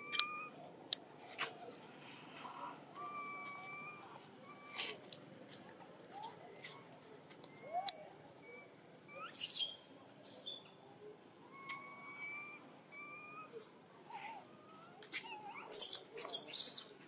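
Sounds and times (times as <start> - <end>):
baby monkey coo calls: 0.0 - 0.6, 3.0 - 5.0, 7.5 - 10.6, 11.5 - 17.0
shrill squeals: 11.6 - 13.5.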